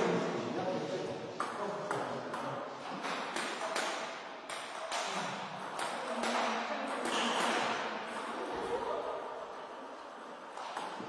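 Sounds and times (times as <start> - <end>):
table tennis balls clicking: 1.4 - 8.4.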